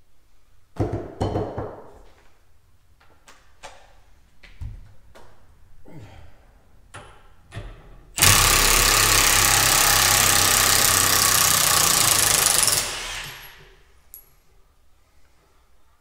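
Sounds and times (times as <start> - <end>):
impact wrench hammering: 8.2 - 13.8.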